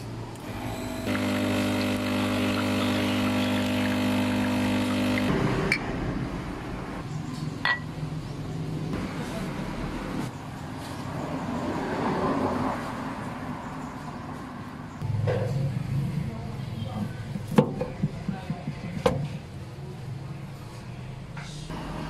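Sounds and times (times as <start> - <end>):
espresso machine pump humming: 0.4 - 5.8.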